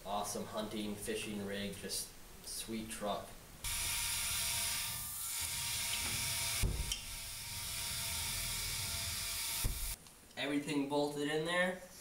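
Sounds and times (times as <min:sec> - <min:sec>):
dull thump: 0:06.0 - 0:07.0.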